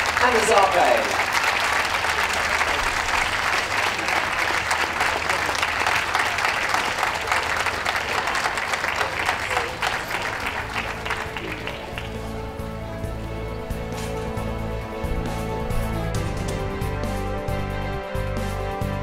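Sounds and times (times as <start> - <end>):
audience applauding: 0.0 - 14.3.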